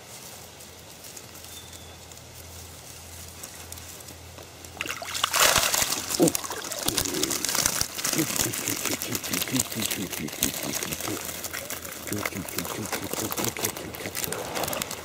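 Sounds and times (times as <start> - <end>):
net crackling through reeds: 0.0 - 15.0
water splashing off a net: 4.8 - 9.4.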